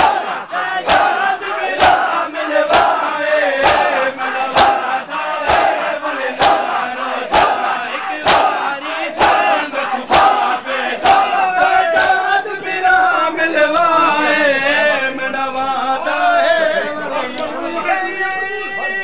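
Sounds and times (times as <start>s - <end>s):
people beating their chests: 0.0s - 13.4s
crowd chanting: 0.0s - 19.0s.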